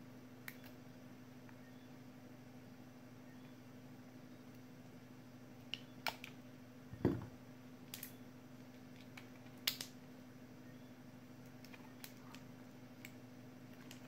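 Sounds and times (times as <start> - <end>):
tool set down on rubber mat: 7.0 - 7.3.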